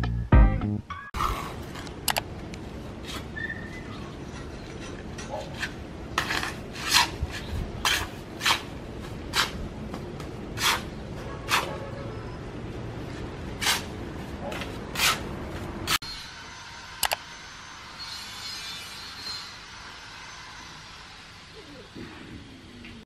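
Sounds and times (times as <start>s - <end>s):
steel trowels scraping concrete blocks: 4.2s - 9.6s, 10.5s - 11.8s, 13.5s - 15.3s, 15.9s - 16.2s, 17.9s - 20.6s.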